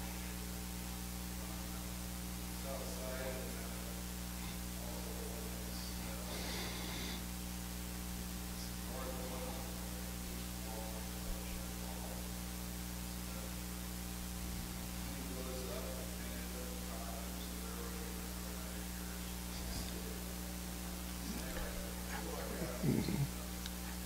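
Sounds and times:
electrical mains hum: 0.0s - 24.0s
faint distant speech: 8.4s - 24.0s.

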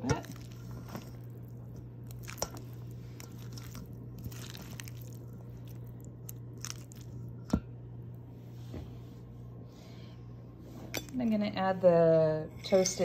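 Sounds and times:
spatula stirring pasta: 0.0s - 7.4s
steady low hum: 0.0s - 13.0s.

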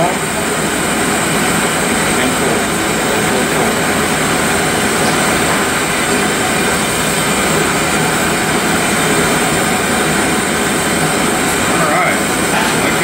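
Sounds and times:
torch flame rushing: 0.0s - 13.0s.

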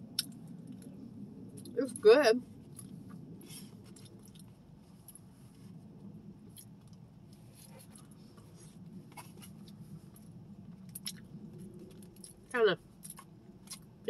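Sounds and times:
low room hum: 0.0s - 14.0s
chewing clicks: 10.9s - 12.4s.

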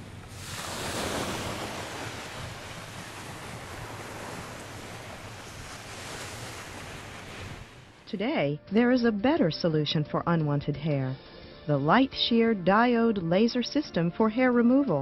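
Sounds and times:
ocean surf on beach: 0.0s - 8.0s.

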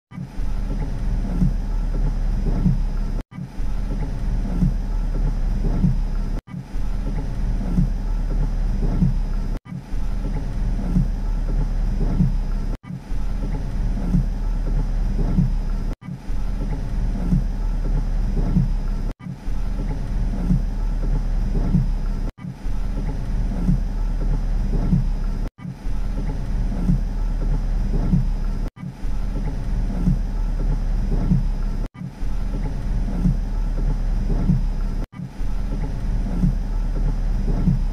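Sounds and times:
rain on car heard inside: 7.0s - 19.1s, 26.1s - 37.9s.

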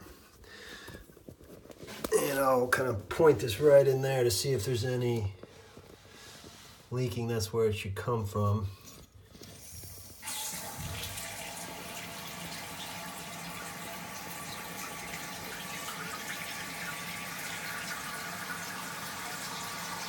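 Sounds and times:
toilet tank refilling: 9.5s - 20.0s.

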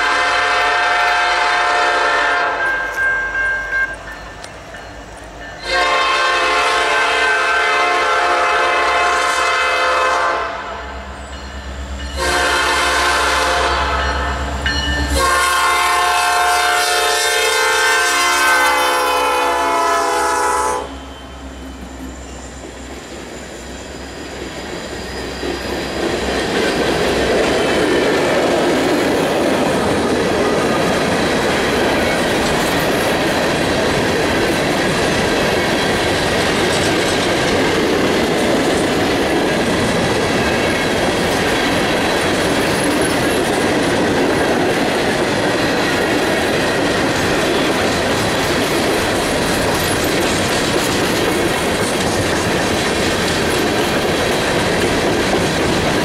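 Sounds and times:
locomotive air horn blasts: 0.0s - 2.7s, 5.6s - 10.9s, 12.2s - 14.2s, 15.1s - 21.1s
train wheels clickety-clack: 21.7s - 56.0s.

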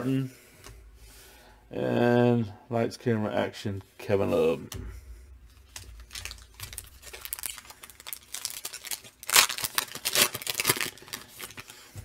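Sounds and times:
foil wrapper crinkling and tearing: 5.7s - 12.0s.

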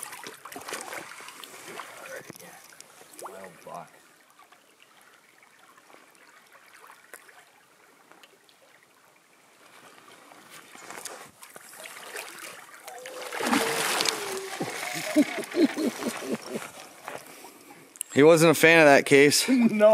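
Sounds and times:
water lapping: 0.0s - 17.9s
fish thrashing and splashing: 11.7s - 17.0s.

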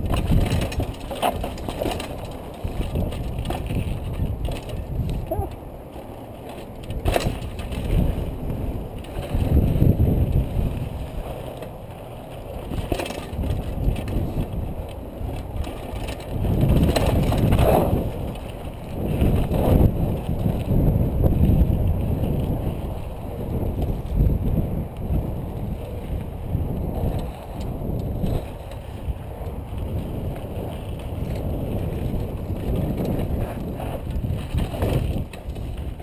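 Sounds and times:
wind on microphone: 0.0s - 5.7s, 6.7s - 11.6s, 12.4s - 36.0s
mountain bike rumbling and rattling: 0.0s - 36.0s
wheels knocking on rock: 0.0s - 36.0s.

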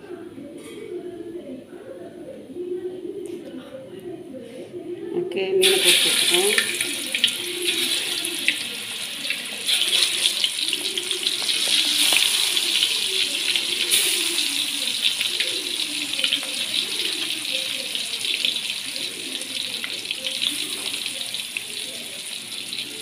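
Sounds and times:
fish sizzling in hot oil: 5.6s - 23.0s.

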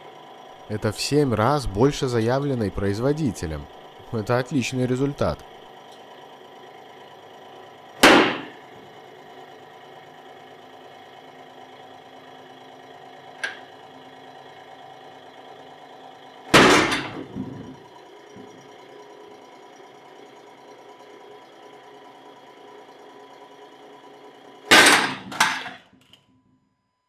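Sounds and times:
hydraulic pump motor humming: 0.0s - 26.2s
loud sharp bangs: 8.0s - 8.6s, 16.6s - 17.2s, 24.7s - 25.3s
small click: 26.0s - 26.3s.

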